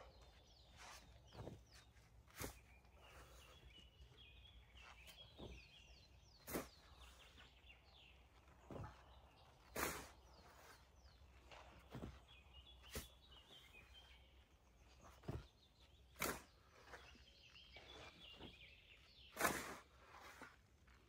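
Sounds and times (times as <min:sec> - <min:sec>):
birds chirping: 0:00.0 - 0:21.0
shovel scraping sand: 0:00.2 - 0:03.6, 0:06.4 - 0:07.5, 0:08.2 - 0:12.2, 0:12.8 - 0:13.7, 0:16.0 - 0:21.0.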